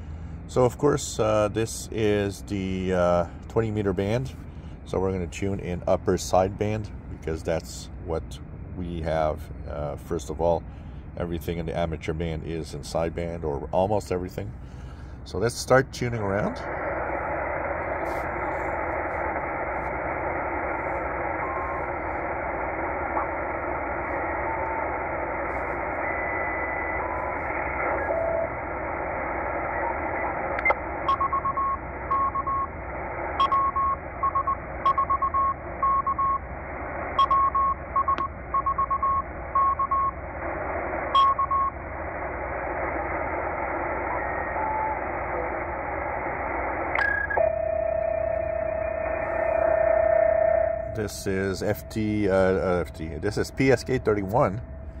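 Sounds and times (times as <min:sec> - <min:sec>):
radio static hiss: 0:00.0 - 0:55.0
radio whistles: 0:16.6 - 0:36.4, 0:42.6 - 0:55.0
morse code tone: 0:31.1 - 0:32.7, 0:33.4 - 0:36.4, 0:37.2 - 0:40.2, 0:41.2 - 0:41.8.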